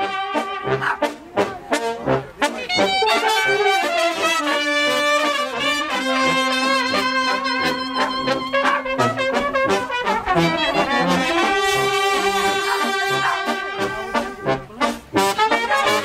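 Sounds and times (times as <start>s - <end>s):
brass band playing: 0.0s - 16.0s.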